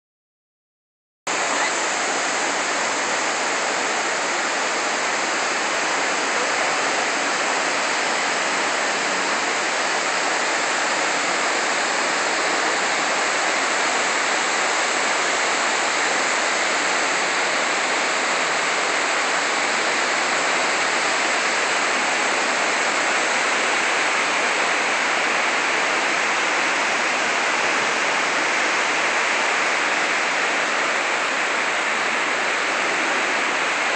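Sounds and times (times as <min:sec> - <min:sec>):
waterfall rushing into pool: 0:01.3 - 0:33.9.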